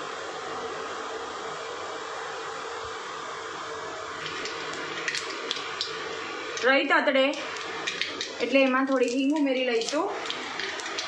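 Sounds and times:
seeds sizzling in hot oil: 3.9s - 11.0s.

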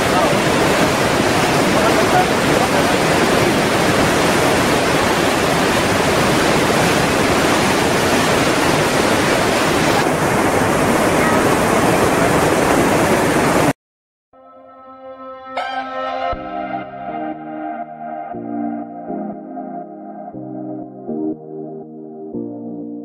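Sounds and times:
river rapids rushing: 0.0s - 13.7s.

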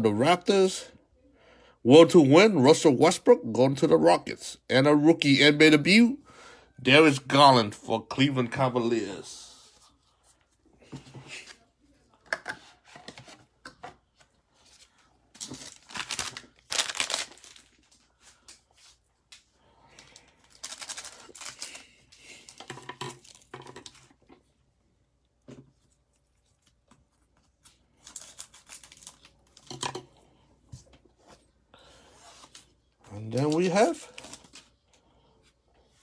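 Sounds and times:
plastic wrappers crinkling: 15.4s - 18.9s, 19.9s - 24.1s, 26.5s - 29.8s, 33.1s - 34.8s.

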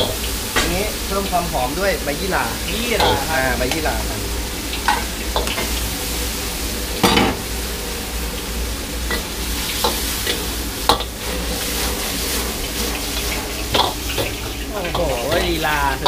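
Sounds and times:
fish sizzling in sauce: 0.0s - 16.0s
ladle scraping and knocking wok: 2.9s - 15.6s.

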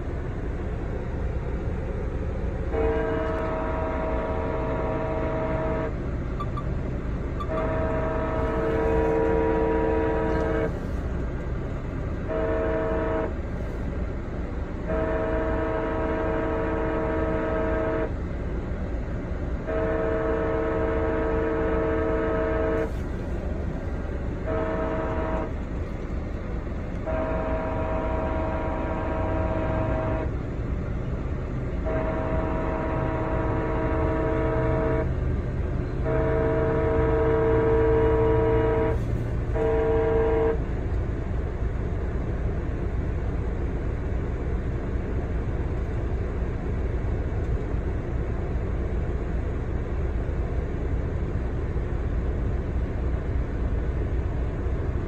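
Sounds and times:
steady low rumble: 0.0s - 55.0s
train horn blasts: 2.1s - 13.9s, 14.6s - 18.3s, 19.4s - 40.9s.

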